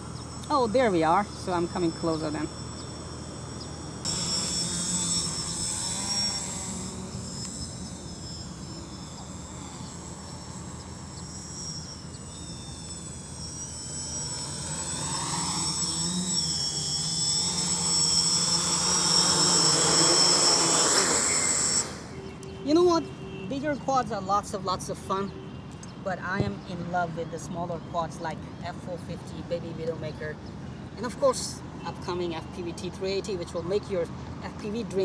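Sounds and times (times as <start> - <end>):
low hum: 0.0 - 25.3
quadcopter propellers whining: 0.0 - 35.0.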